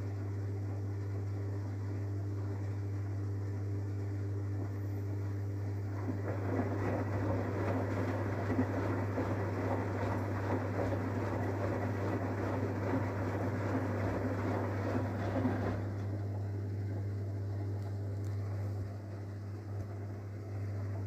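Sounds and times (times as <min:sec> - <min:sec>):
washing machine hum: 0:00.0 - 0:21.0
laundry sloshing in drum: 0:05.7 - 0:21.0.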